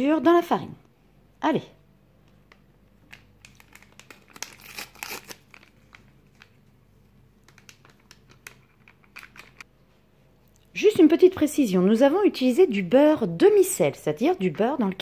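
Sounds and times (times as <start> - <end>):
paper packet crinkling: 3.0 - 9.6.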